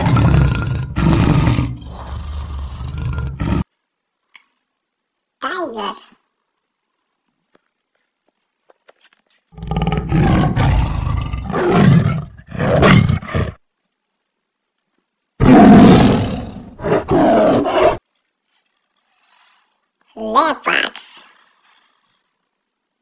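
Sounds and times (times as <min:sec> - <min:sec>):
tiger roaring: 0:00.0 - 0:03.7, 0:09.6 - 0:13.6, 0:15.4 - 0:18.0.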